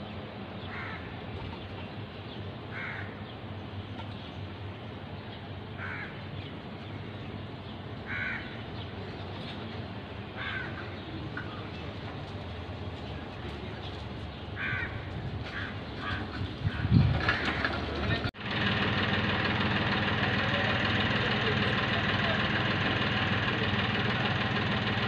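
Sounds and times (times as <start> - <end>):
low street hum: 0.0 - 25.0
crow cawing: 0.7 - 1.1, 2.7 - 3.2, 5.8 - 6.2, 8.1 - 8.6, 10.4 - 11.0, 14.6 - 16.3, 17.3 - 17.7.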